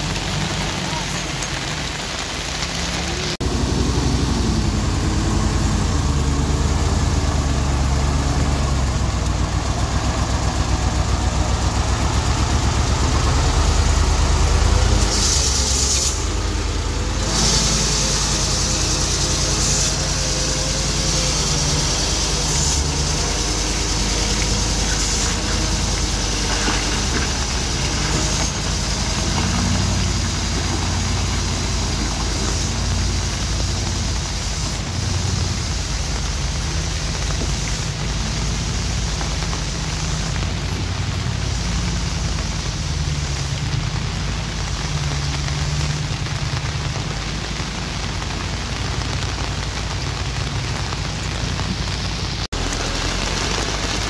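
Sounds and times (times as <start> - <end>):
truck diesel engine running: 0.0 - 54.0
air hiss: 14.7 - 40.4.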